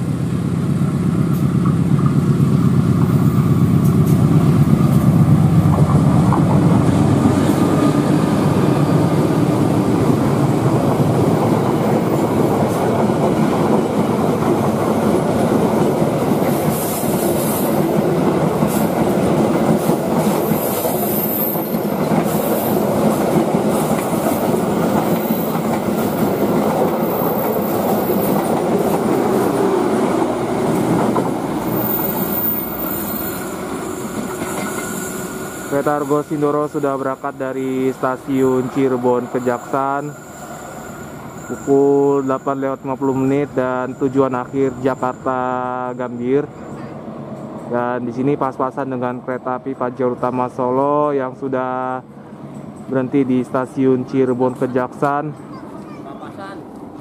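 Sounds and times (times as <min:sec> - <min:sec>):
diesel locomotive engine: 0:00.0 - 0:57.0
train coaches clickety-clack: 0:00.1 - 0:57.0
high wheel squeal: 0:24.8 - 0:29.7, 0:31.6 - 0:37.4, 0:38.3 - 0:47.5.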